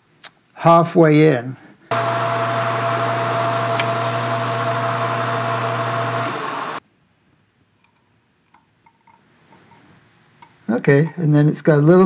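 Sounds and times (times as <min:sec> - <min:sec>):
metal lathe humming and whining: 0:01.9 - 0:06.8.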